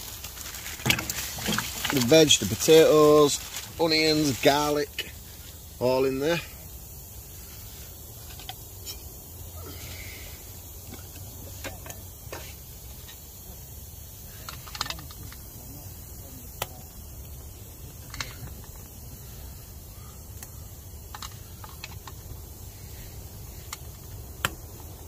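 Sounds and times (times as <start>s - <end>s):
wood fire crackling: 0.0s - 25.0s.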